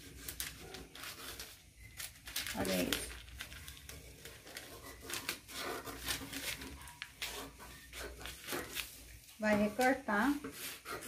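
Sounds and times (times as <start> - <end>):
paper rustling: 0.0 - 11.0
scissors snipping paper: 0.1 - 8.9.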